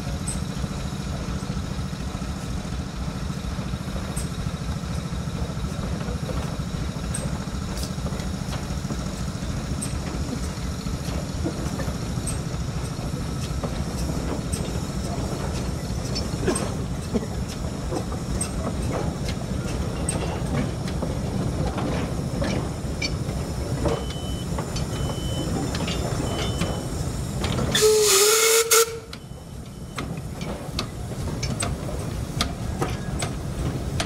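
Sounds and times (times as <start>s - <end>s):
train wheels clattering on rails: 0.0s - 34.0s
steam hissing: 26.8s - 29.0s
steam whistle blast: 27.7s - 29.2s.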